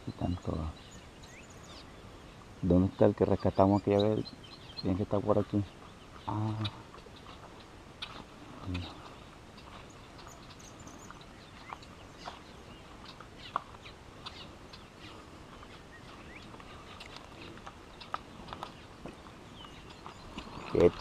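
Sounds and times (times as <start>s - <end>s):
bird chirps and calls: 0.0s - 21.0s
low background hiss: 0.0s - 21.0s.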